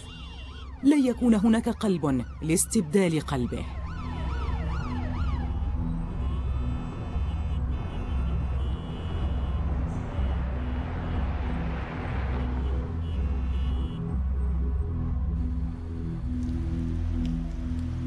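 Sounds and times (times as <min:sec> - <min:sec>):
emergency vehicle siren: 0:00.0 - 0:18.0
dramatic music with pulsing beat: 0:03.9 - 0:18.0.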